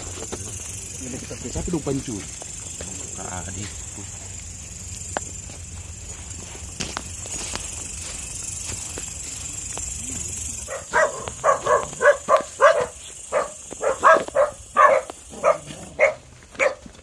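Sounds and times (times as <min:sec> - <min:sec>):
dog barking: 0:10.7 - 0:16.9.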